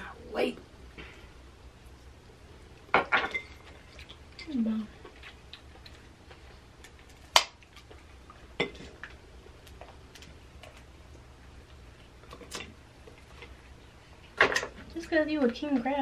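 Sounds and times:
crab shell snapping: 0:06.8 - 0:07.9.

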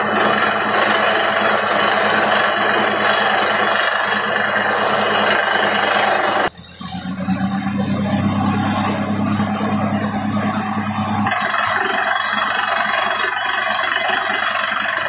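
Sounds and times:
drilling rig running: 0:00.0 - 0:15.0
low hum: 0:01.0 - 0:13.0.

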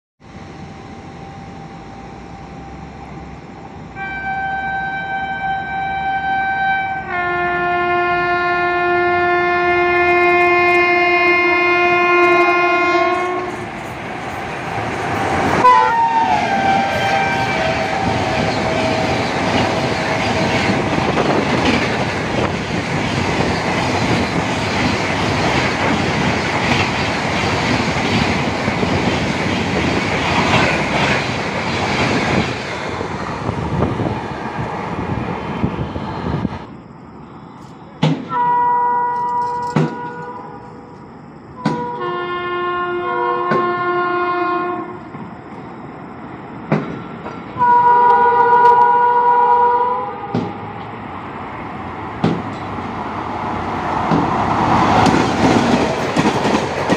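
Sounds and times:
train horn blasts: 0:03.9 - 0:13.6, 0:15.6 - 0:19.2, 0:38.3 - 0:40.9, 0:41.6 - 0:45.1, 0:47.6 - 0:50.9
locomotive passing clack: 0:13.1 - 0:35.7, 0:52.1 - 0:56.9
train wheels clattering: 0:16.4 - 0:34.8, 0:53.9 - 0:56.9.

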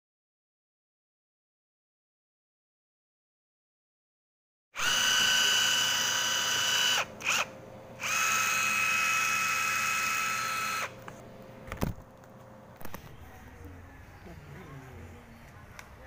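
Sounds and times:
impact wrench motor whine: 0:04.8 - 0:11.0.

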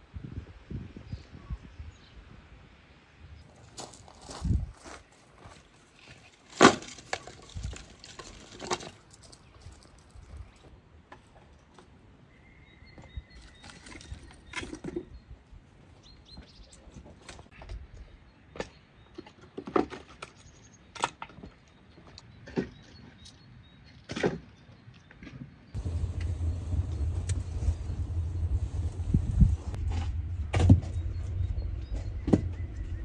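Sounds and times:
wood scraps knocking and clattering: 0:06.5 - 0:09.1.

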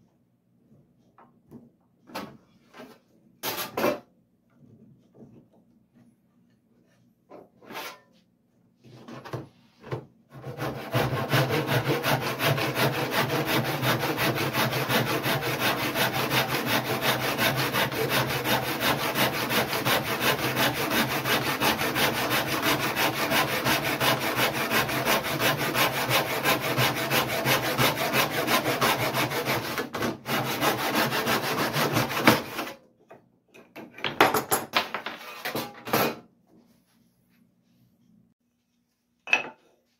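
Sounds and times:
handsaw rasping strokes: 0:10.4 - 0:32.7.

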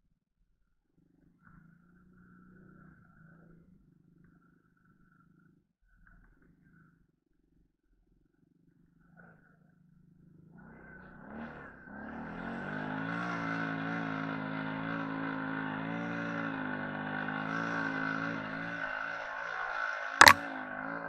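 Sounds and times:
quad bike engine revving: 0:11.2 - 0:21.0.

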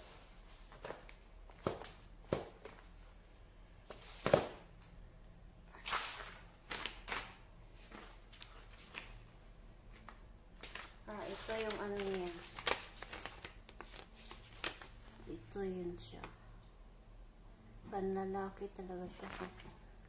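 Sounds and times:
paper rustling: 0:00.0 - 0:01.8, 0:05.8 - 0:09.2, 0:09.9 - 0:15.2, 0:19.1 - 0:19.7.

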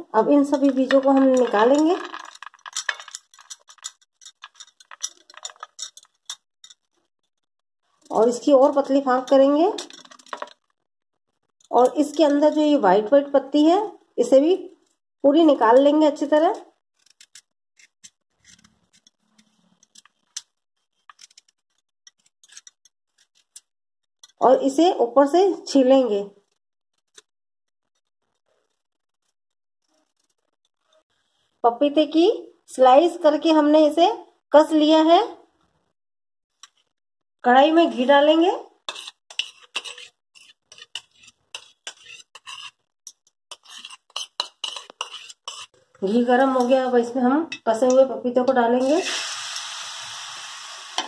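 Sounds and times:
steel spoon scraping metal pan: 0:00.3 - 0:06.9, 0:08.5 - 0:10.5, 0:22.1 - 0:23.6, 0:38.9 - 0:47.1
knife scraping fruit: 0:17.0 - 0:20.2, 0:20.8 - 0:23.6, 0:38.9 - 0:42.9, 0:43.5 - 0:45.8.

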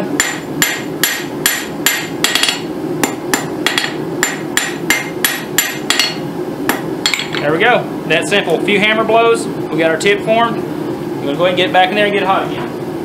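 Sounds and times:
hammer striking steel on anvil: 0:00.2 - 0:07.4.

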